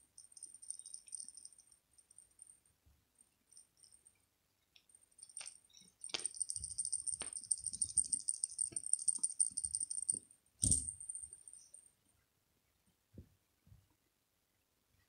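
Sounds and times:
small bell jingling: 0:00.0 - 0:02.6, 0:03.5 - 0:04.1, 0:05.2 - 0:11.8.

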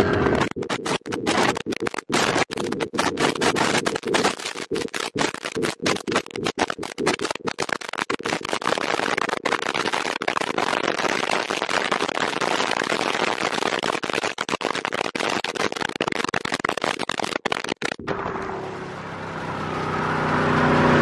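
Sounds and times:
steady engine hum: 0:18.0 - 0:21.0.

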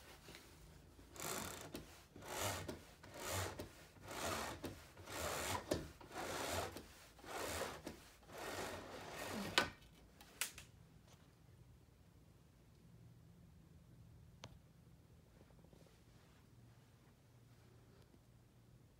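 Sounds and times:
roller shade mechanism rasping: 0:01.0 - 0:09.7.

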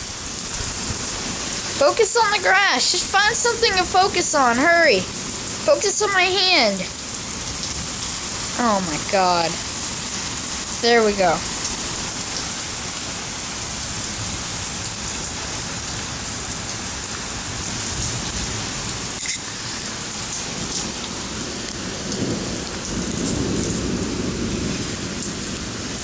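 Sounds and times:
heavy rain on concrete: 0:00.0 - 0:26.0
thunder rumbling: 0:20.0 - 0:26.0.

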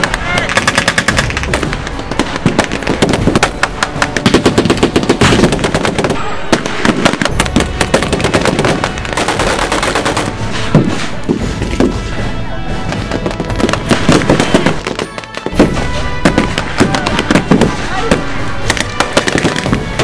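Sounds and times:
rifle and automatic gunfire: 0:00.0 - 0:10.3.

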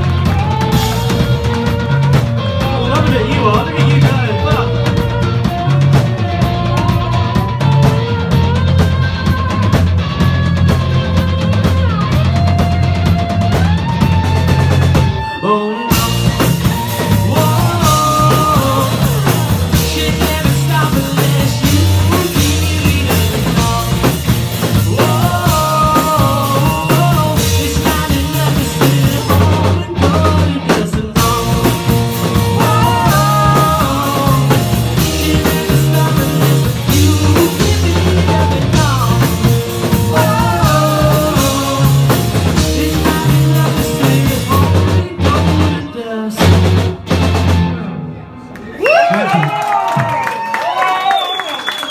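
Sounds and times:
person singing: 0:00.0 - 0:08.6, 0:15.2 - 0:47.0
drum kit: 0:00.0 - 0:48.2
distorted electric guitars: 0:00.0 - 0:48.5
bass guitar: 0:00.0 - 0:51.9.

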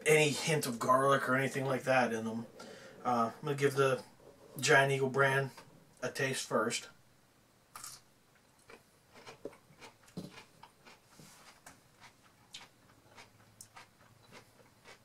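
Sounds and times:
person chewing crunchy pickle: 0:08.6 - 0:15.0.

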